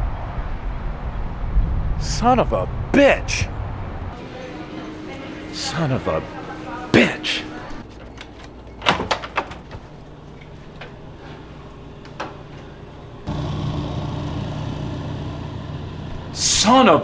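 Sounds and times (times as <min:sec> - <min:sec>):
air conditioning unit humming: 0:04.2 - 0:17.0.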